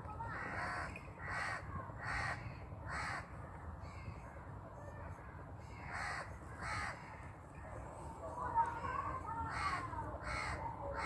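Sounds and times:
crow cawing: 0:00.3 - 0:03.3, 0:05.7 - 0:07.4, 0:09.4 - 0:11.0.

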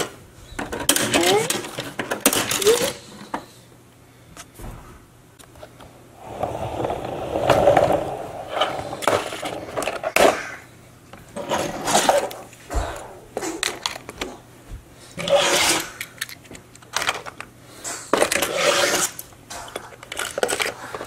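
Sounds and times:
hard plastic scraping and rattling: 0:05.6 - 0:10.4, 0:11.4 - 0:14.4, 0:18.2 - 0:21.0.

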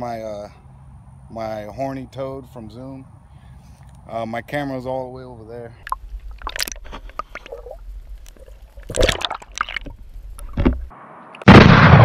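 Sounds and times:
small underwater clicks: 0:05.8 - 0:10.9
splashing thumps: 0:05.8 - 0:10.9.

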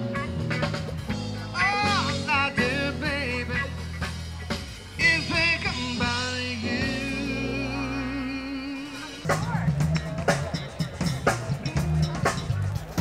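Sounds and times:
rock and roll music: 0:00.0 - 0:13.0
person singing: 0:01.5 - 0:03.8, 0:05.0 - 0:09.4.

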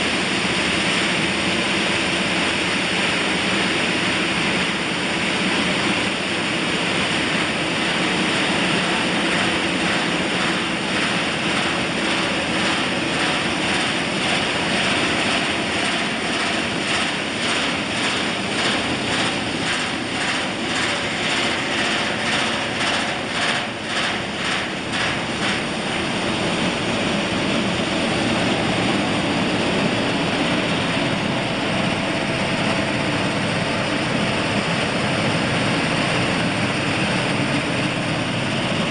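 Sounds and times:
machine roaring: 0:00.0 - 0:38.9.

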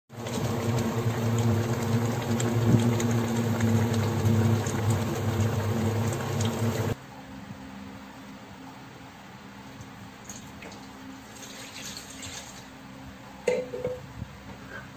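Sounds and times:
broth bubbling at a boil: 0:00.1 - 0:07.0.

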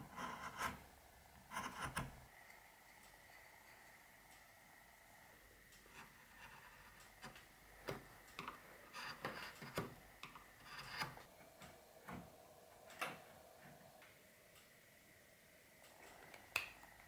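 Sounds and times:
knife scraping wood: 0:10.6 - 0:11.3.

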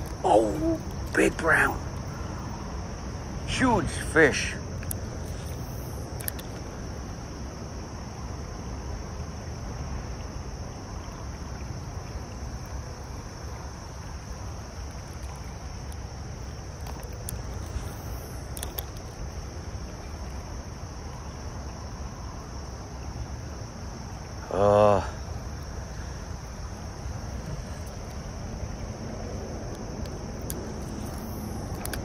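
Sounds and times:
high insect buzz: 0:00.0 - 0:09.1, 0:10.3 - 0:32.0
creek water rushing: 0:00.0 - 0:32.0
faint clicks: 0:04.8 - 0:06.7, 0:16.8 - 0:19.2, 0:29.6 - 0:32.0.

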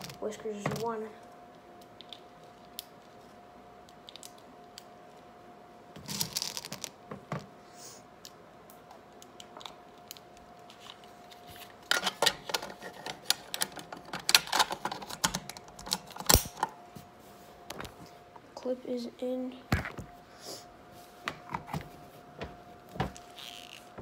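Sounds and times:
faint steady hum: 0:00.0 - 0:24.0
plastic clicks and rattles: 0:11.9 - 0:16.7.

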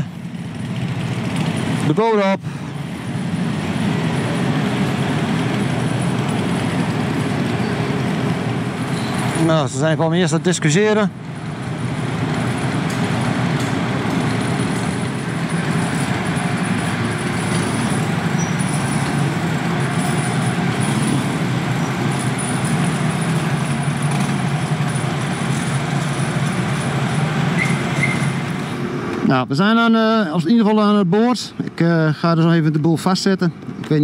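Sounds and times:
engine rumble: 0:00.0 - 0:34.0.

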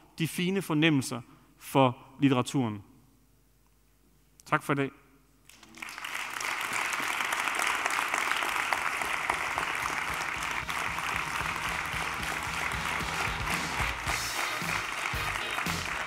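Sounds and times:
audience applauding: 0:05.5 - 0:16.0.

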